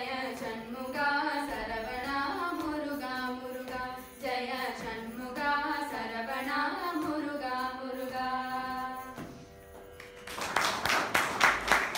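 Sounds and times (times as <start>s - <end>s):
girls singing: 0.0s - 9.2s
applause: 10.0s - 11.9s.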